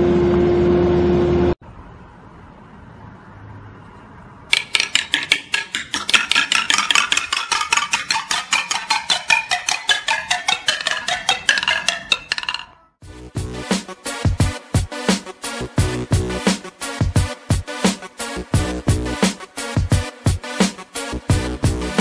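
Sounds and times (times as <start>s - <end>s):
balls clattering down wooden toy: 4.5s - 12.8s.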